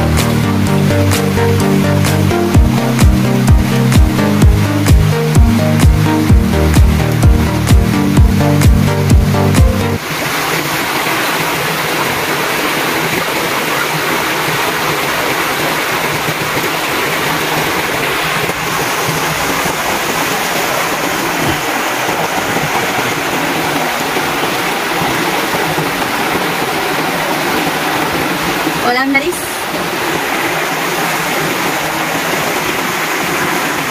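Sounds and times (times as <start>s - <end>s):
creek running over stones: 10.0s - 33.9s.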